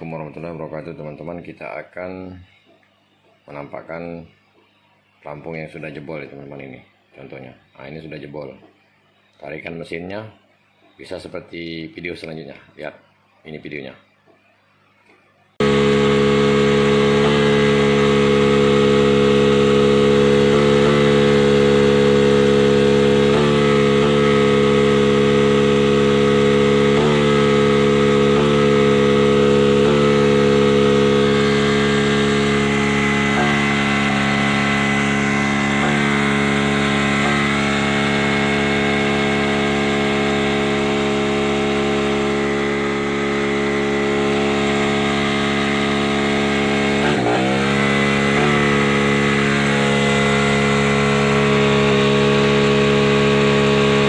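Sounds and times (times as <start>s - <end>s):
outboard motor droning: 15.6s - 54.0s.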